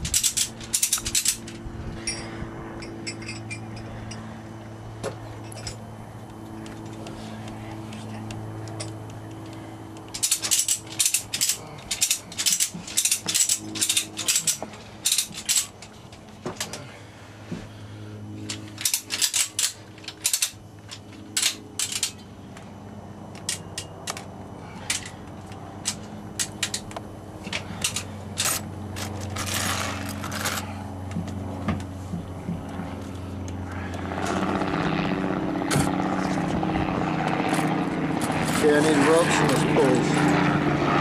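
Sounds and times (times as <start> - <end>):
ratchet strap clicks: 0.0 - 2.2, 6.7 - 16.0
steady low hum: 0.0 - 41.0.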